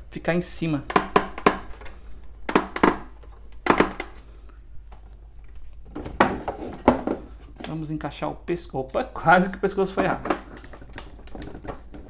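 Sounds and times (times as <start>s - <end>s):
hard plastic toy knocking: 0.9s - 1.7s.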